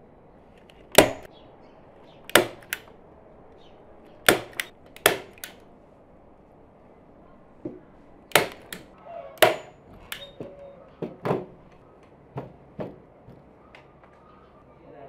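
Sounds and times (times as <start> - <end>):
staple gun clacks: 0.6 - 1.3, 2.3 - 2.9, 4.2 - 5.6, 8.3 - 10.3.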